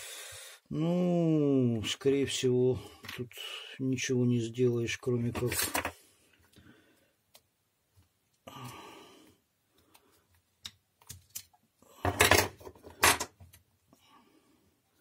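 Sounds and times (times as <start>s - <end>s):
hard objects clattering: 12.0s - 13.4s.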